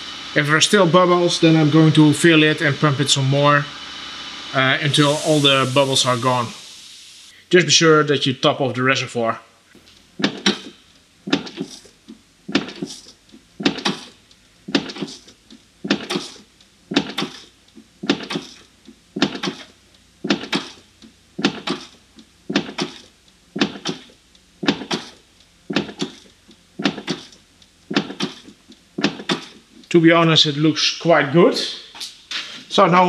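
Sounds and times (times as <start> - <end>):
clutch pedal knocking: 9.8 - 29.8.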